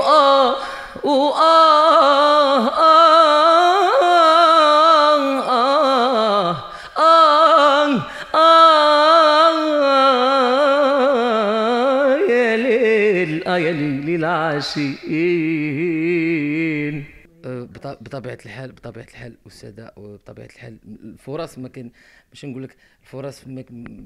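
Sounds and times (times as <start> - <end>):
man singing unaccompanied: 0.0 - 18.3.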